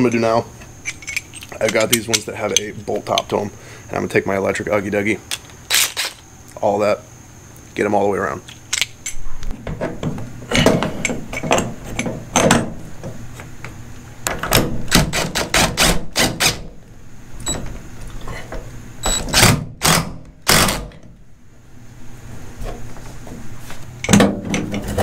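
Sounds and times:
metal clanks and clicks: 0.0 - 3.3
impact driver rattling bursts: 19.2 - 21.0.

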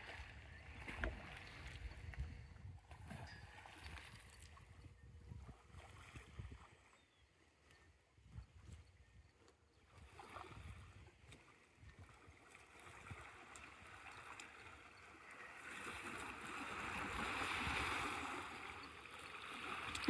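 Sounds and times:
faint water sounds: 0.0 - 20.0
rush of churned water: 11.9 - 20.0.

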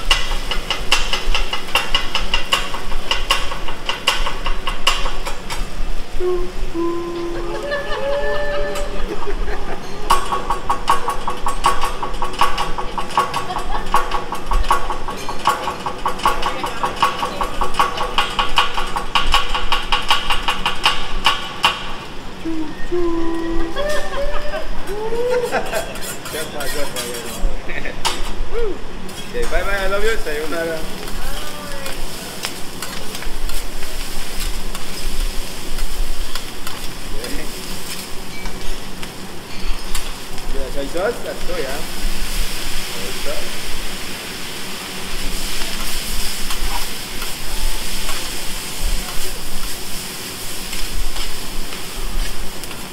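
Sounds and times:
metal spatula tapping on griddle: 0.0 - 5.6, 10.1 - 21.9
rice sizzling on a griddle: 0.0 - 52.9
metal spatula scraping and tapping: 25.5 - 27.5, 50.7 - 51.8.

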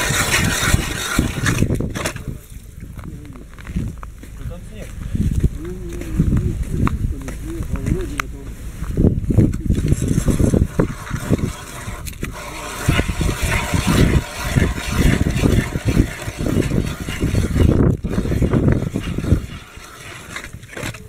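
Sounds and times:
ice auger cutting ice: 0.0 - 2.4, 9.5 - 21.0
wind buffeting microphone: 0.0 - 21.0.

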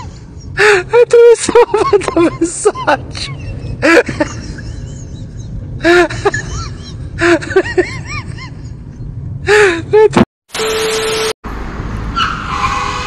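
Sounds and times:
steady low rumble: 0.2 - 9.9.

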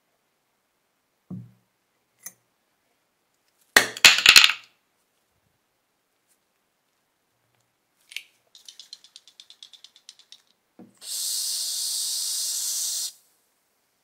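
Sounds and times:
object set down on wood: 1.3 - 1.6
aerosol can clicks and clinks: 8.1 - 10.6
aerosol hiss: 11.0 - 13.4.

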